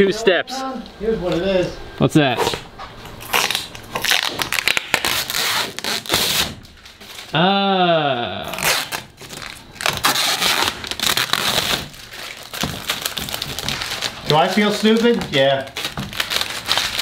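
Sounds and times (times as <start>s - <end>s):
plastic film peeling: 2.4s - 7.4s, 8.5s - 17.0s
vocal exclamation: 7.3s - 8.7s.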